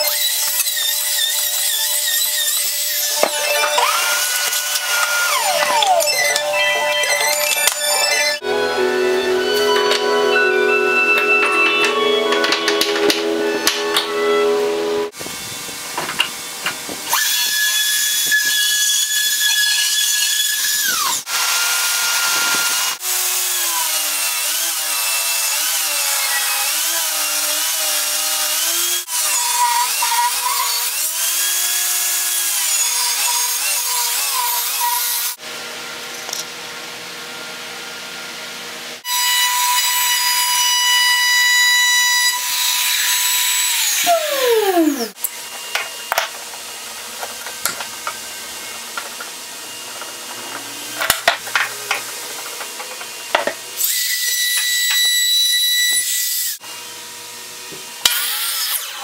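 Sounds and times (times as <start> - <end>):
table saw ripping board: 0.0 - 8.4, 45.5 - 56.6
motor winding down: 0.0 - 15.2, 43.9 - 53.9
electric router whining: 0.0 - 18.8, 19.4 - 25.3, 39.0 - 58.1.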